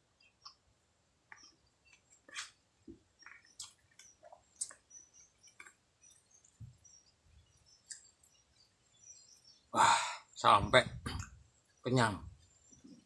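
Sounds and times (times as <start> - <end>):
person eating clicks and smacks: 3.2 - 5.8, 7.8 - 8.1.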